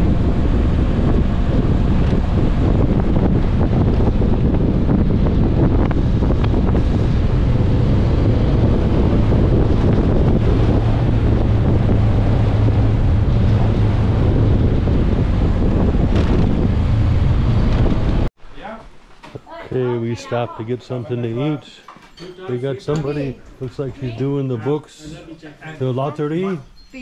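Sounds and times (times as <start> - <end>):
steady low drone: 0.0 - 18.3
wind buffeting microphone: 0.0 - 18.3.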